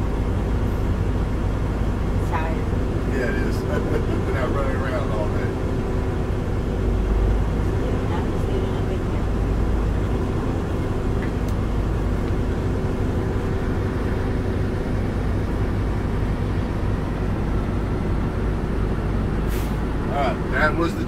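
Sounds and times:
diesel truck engine idling: 0:00.0 - 0:21.0
air brake hiss: 0:19.5 - 0:19.8.

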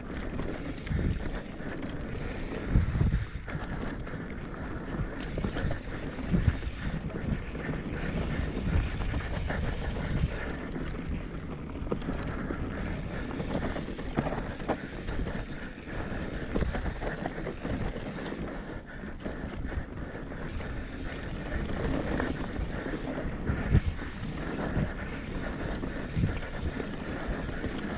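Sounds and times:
tyres rolling on dirt: 0:00.0 - 0:27.9
wind rushing over microphone: 0:00.0 - 0:27.9.

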